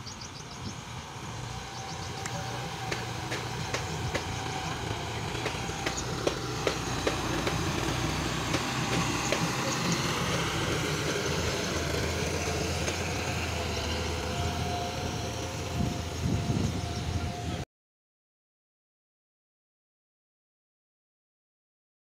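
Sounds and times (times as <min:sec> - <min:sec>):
tractor diesel engine running: 0:00.0 - 0:17.6.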